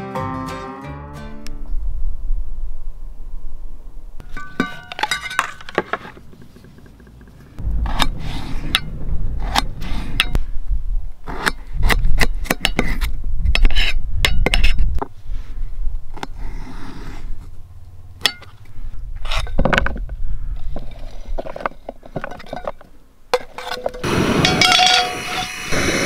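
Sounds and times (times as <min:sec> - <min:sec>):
low rumble: 0:01.5 - 0:04.2, 0:07.3 - 0:16.2, 0:17.0 - 0:22.1.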